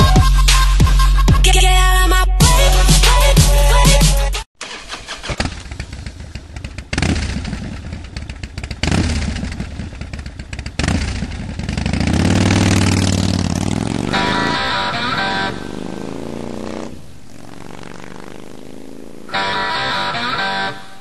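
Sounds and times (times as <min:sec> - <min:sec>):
motorcycle engine revving: 0:04.6 - 0:21.0.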